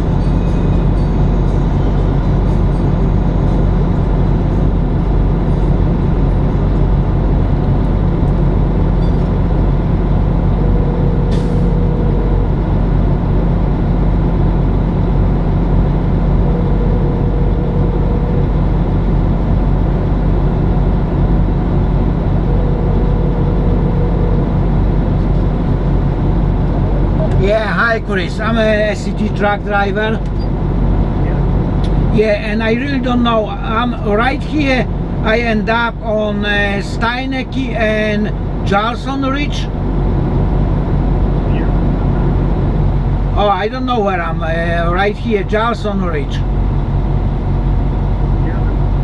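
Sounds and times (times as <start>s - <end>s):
diesel engine idling: 0.0s - 49.0s
faint tone: 10.4s - 12.9s, 16.1s - 19.4s, 22.1s - 25.4s.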